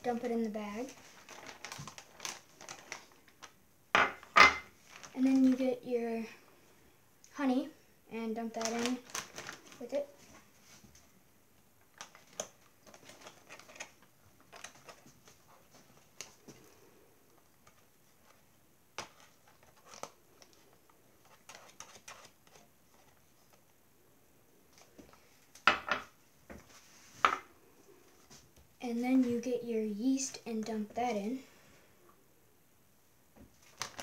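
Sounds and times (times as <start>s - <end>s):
plastic bag rustling: 0.6s - 3.6s, 4.6s - 5.6s, 8.4s - 11.0s, 11.9s - 23.6s, 33.6s - 34.0s.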